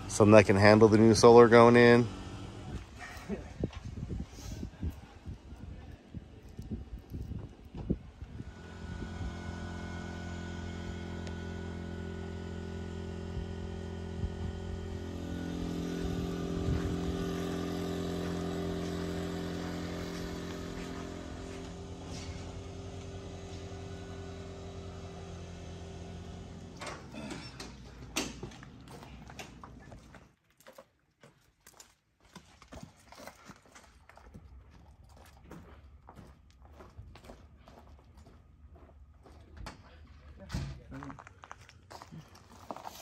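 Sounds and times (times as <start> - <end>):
engine running: 0.0 - 30.2.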